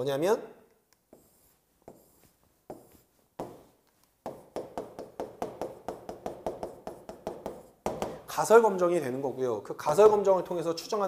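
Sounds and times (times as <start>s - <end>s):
handwriting taps on touchscreen glass: 1.0s - 8.2s.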